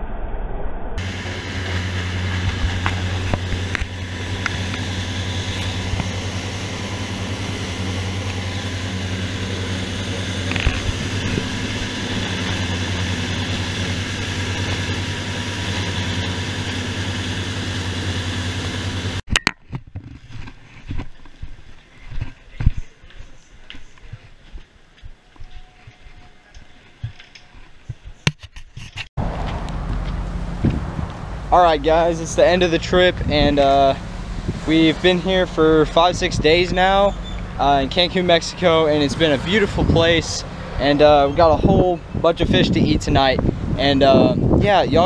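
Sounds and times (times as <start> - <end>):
wind rushing: 0.0 - 14.6, 29.2 - 36.9, 38.8 - 45.0
boat engines droning: 1.0 - 19.2, 29.2 - 45.0
churning wake: 1.0 - 19.2, 29.2 - 45.0.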